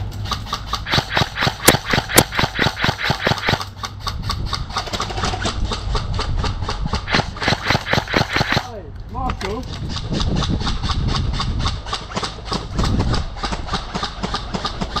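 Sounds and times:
airsoft rifle shots: 0:00.2 - 0:03.8, 0:07.0 - 0:08.8
wind rumble on microphone: 0:03.7 - 0:07.6, 0:08.8 - 0:15.0.

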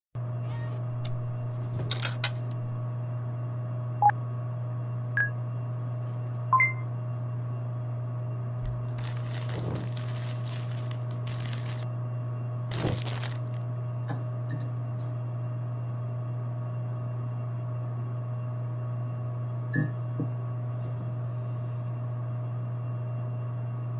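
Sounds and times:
low electrical hum: 0:00.2 - 0:23.9.

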